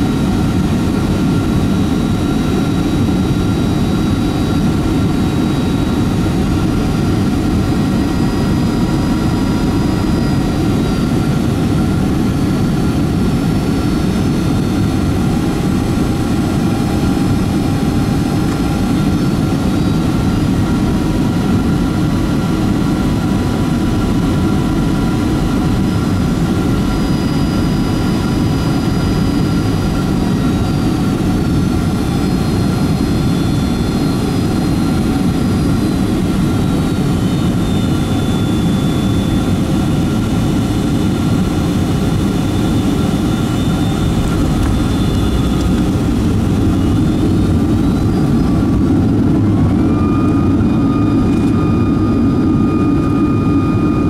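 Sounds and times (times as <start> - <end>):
airplane cabin roar: 0.0 - 54.0
faint high whining tones: 22.8 - 54.0.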